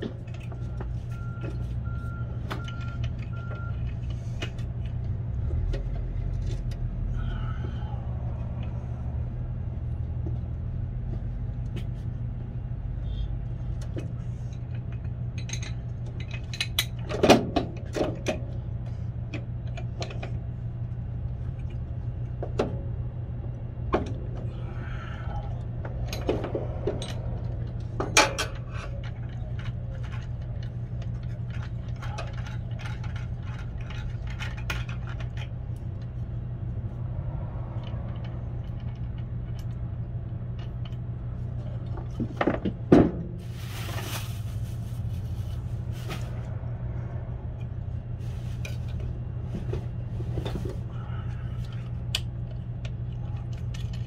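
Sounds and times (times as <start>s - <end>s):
steady low hum: 18.4s - 54.0s.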